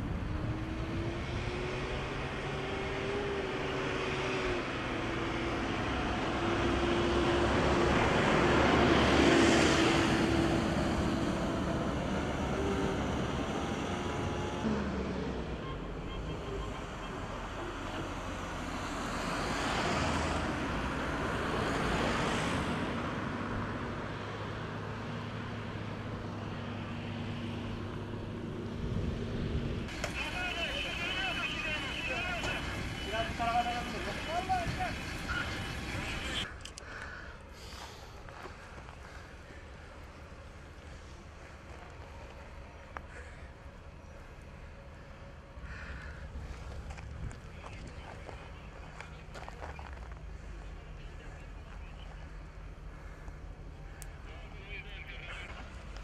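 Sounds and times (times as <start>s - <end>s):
engine hum: 0.0s - 56.0s
broad rushing noise: 28.4s - 36.5s.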